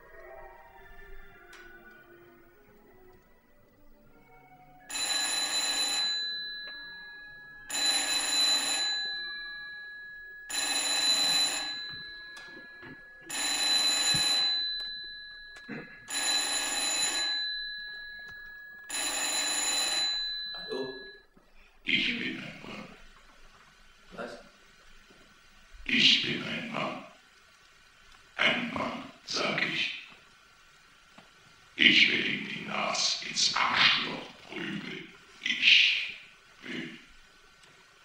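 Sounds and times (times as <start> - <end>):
electric bell ringing: 4.9 - 21.4.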